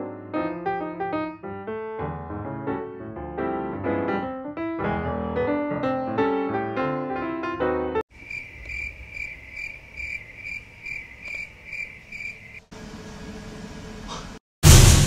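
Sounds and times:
piano music: 0.0 - 8.0
cricket chirping: 8.1 - 12.7.

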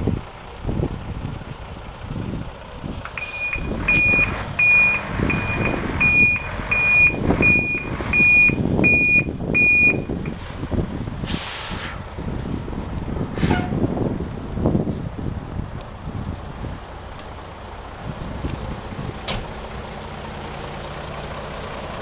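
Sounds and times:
diesel truck engine running: 0.0 - 22.0
reversing alarm beeping: 3.2 - 10.2
air brake hiss: 11.2 - 12.0, 13.4 - 13.8.

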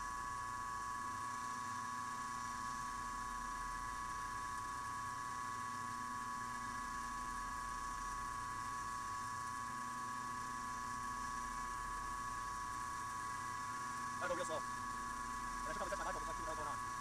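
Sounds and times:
milling machine whine: 13.3 - 17.0.

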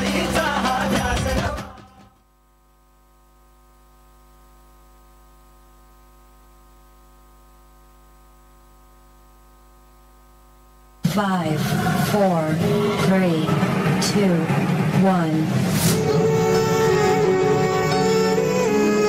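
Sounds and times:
faint electrical mains hum: 2.1 - 11.5.

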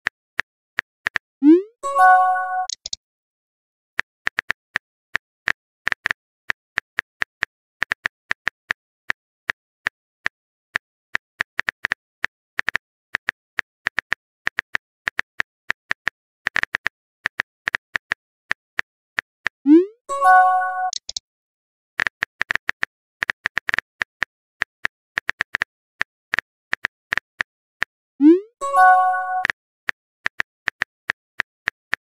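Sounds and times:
keyboard typing taps: 1.1 - 3.0
message chime: 1.4 - 2.7, 19.7 - 21.0, 28.2 - 29.5.

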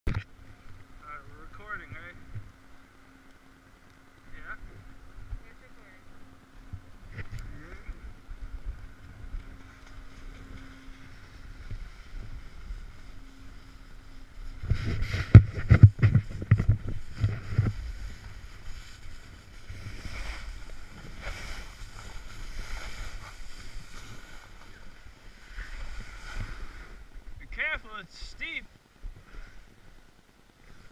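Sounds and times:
wind rumbling on microphone: 4.2 - 27.6
snowboard sliding over snow: 7.5 - 30.9.

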